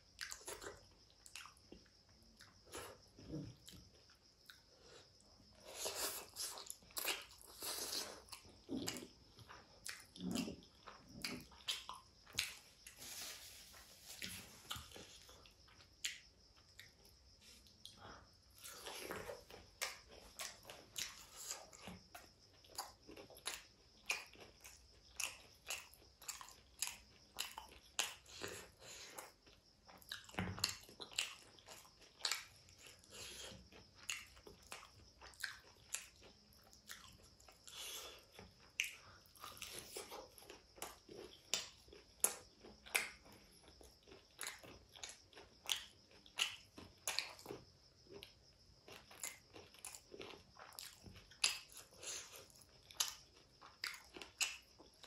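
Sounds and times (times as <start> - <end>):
chewing crispy fried chicken: 0.0 - 55.0
wet mouth clicks: 41.6 - 43.2, 53.8 - 54.7.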